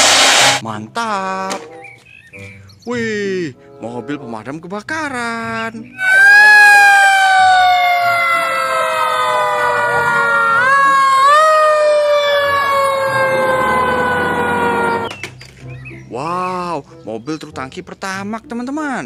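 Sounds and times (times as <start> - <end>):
falling siren wail: 6.0 - 15.1
rising siren: 6.0 - 15.1.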